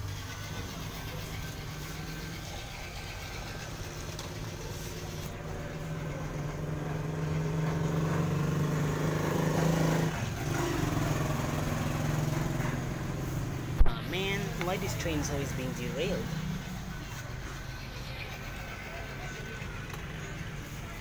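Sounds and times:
toy train motor humming: 0.0s - 8.7s, 14.3s - 21.0s.

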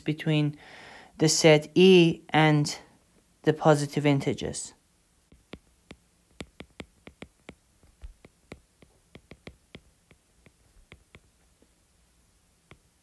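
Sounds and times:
stylus tapping on glass screen: 5.3s - 11.4s, 12.6s - 13.0s.

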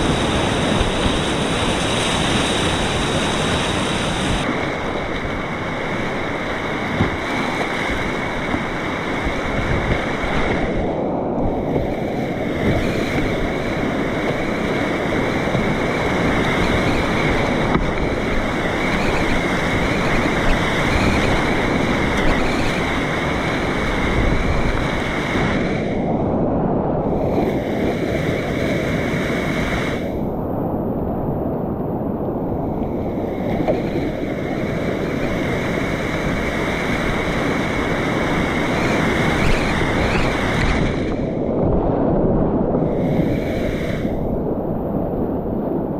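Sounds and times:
whitewater river rapids rushing: 0.0s - 25.9s, 33.5s - 41.2s.

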